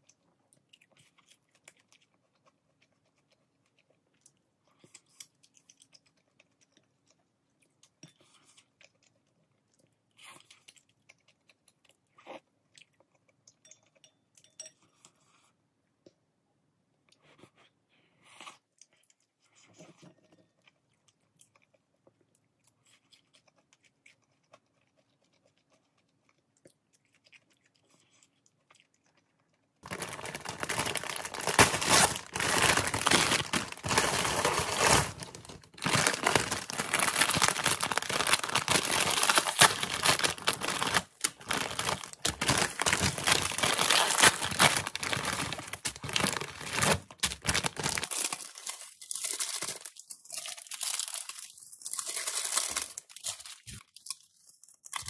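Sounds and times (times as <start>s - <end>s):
plastic packaging crinkling: 29.8s - 55.0s.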